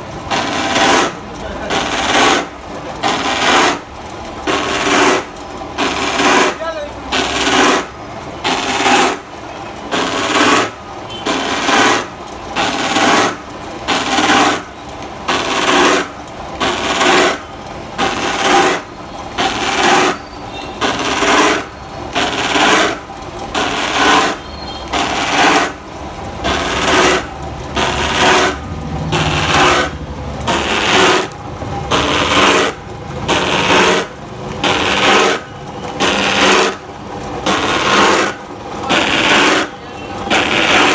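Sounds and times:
saw blades rasping through plastic pipe: 0.3s - 2.5s, 4.5s - 6.6s, 7.2s - 7.9s, 8.5s - 9.2s, 10.0s - 14.7s, 15.3s - 17.4s, 18.0s - 18.8s, 19.4s - 20.2s, 20.8s - 23.0s, 23.6s - 24.4s, 25.0s - 25.8s, 26.4s - 36.8s, 37.4s - 40.9s.

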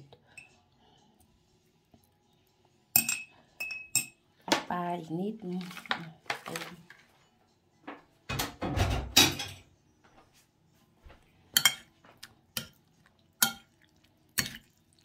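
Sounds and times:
cutlery scraping on plate: 11.6s - 11.9s.

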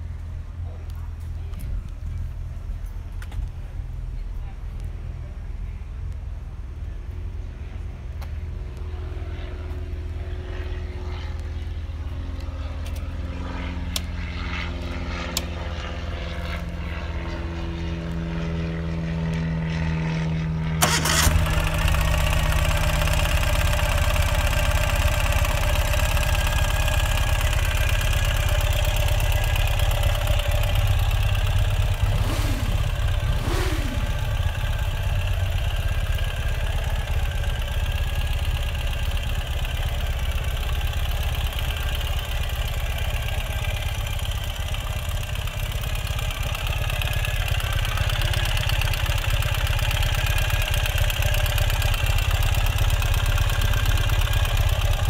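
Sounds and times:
engine throttle blips: 0.0s - 55.0s
motorcycle engine idling: 20.8s - 55.0s.

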